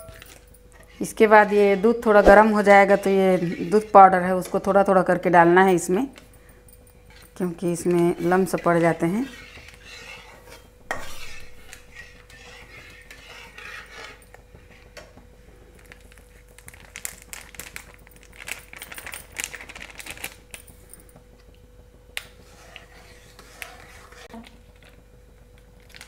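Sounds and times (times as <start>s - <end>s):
metal spatula scraping a pot: 0.0s - 4.8s, 7.1s - 15.1s, 22.3s - 24.3s.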